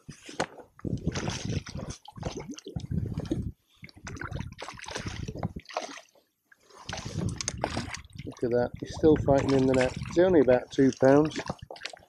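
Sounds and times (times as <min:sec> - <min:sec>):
fish splashing in net: 0:01.1 - 0:02.7, 0:04.1 - 0:06.1, 0:06.8 - 0:08.3, 0:09.4 - 0:10.2, 0:11.1 - 0:12.0.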